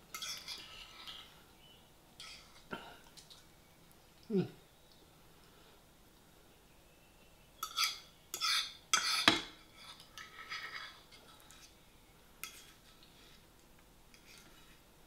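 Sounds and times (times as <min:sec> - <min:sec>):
fork scraping a plate: 0:00.1 - 0:01.4, 0:07.6 - 0:11.8, 0:12.4 - 0:13.4, 0:14.1 - 0:14.8.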